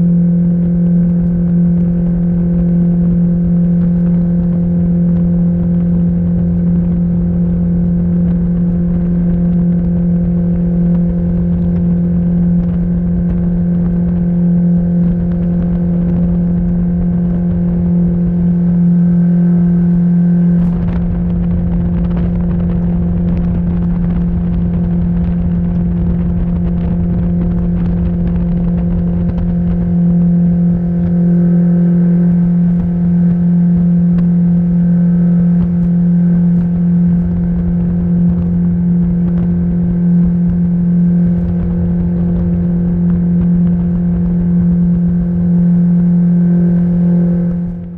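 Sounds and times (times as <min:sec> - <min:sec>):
outboard engine drone: 0:00.0 - 0:47.9
wind rumble: 0:00.0 - 0:47.9.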